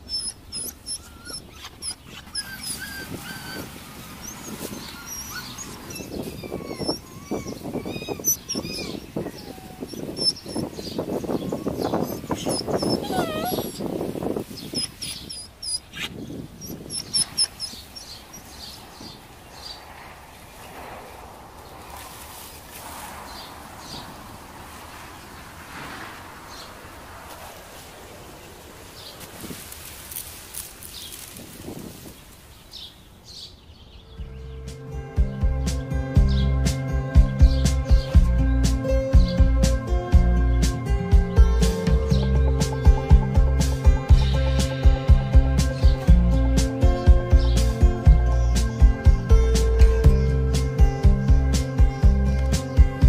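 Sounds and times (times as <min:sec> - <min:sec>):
bird chirping: 0:00.0 - 0:20.8, 0:32.5 - 0:35.4
small birds chirping: 0:00.0 - 0:21.0, 0:21.6 - 0:25.6, 0:26.4 - 0:51.2
rustling of leaves and branches: 0:00.0 - 0:53.0.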